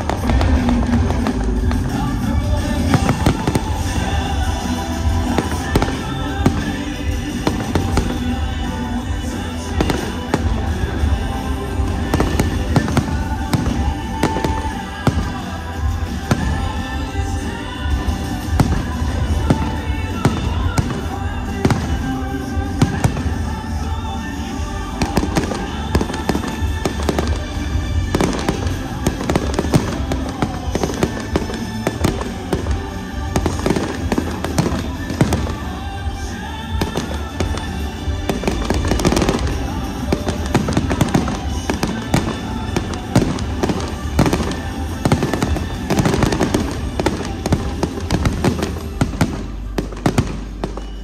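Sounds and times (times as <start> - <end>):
fireworks bangs and crackling: 0.0 - 51.0
music: 0.0 - 51.0.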